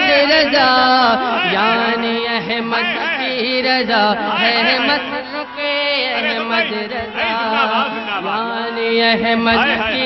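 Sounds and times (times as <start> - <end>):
man singing into a microphone: 0.0 - 10.0.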